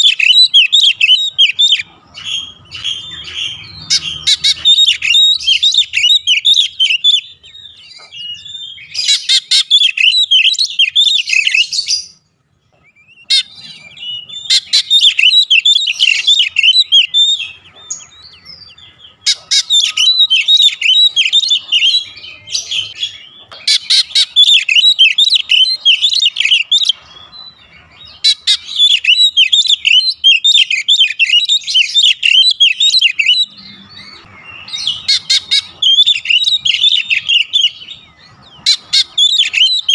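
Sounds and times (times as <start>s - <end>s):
bird singing rapid high song: 0.0s - 39.9s.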